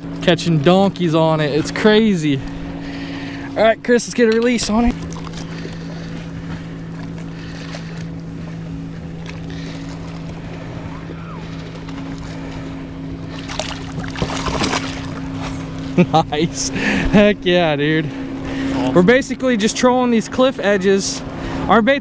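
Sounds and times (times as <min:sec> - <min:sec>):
boat motor humming: 0:00.0 - 0:22.0
fish splashing in water: 0:13.3 - 0:15.6.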